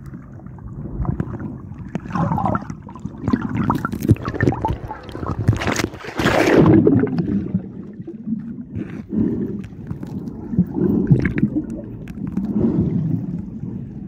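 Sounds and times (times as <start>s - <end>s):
muffled underwater sloshing: 0.0s - 14.0s.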